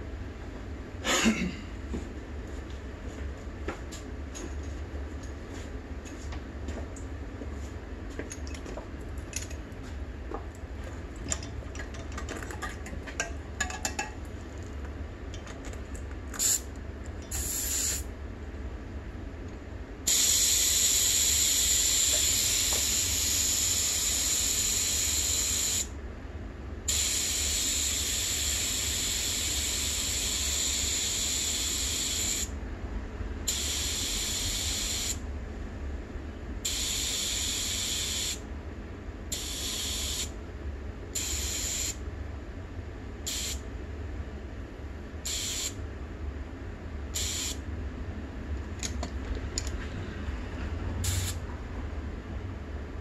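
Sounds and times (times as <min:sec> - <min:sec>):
compressed air hissing into tire: 0:16.4 - 0:16.7, 0:17.3 - 0:18.1, 0:20.1 - 0:25.9, 0:26.9 - 0:32.5, 0:33.5 - 0:35.2, 0:36.6 - 0:38.4, 0:39.3 - 0:40.3, 0:41.2 - 0:42.0, 0:43.3 - 0:43.6, 0:45.3 - 0:45.8, 0:47.2 - 0:47.6, 0:51.0 - 0:51.4.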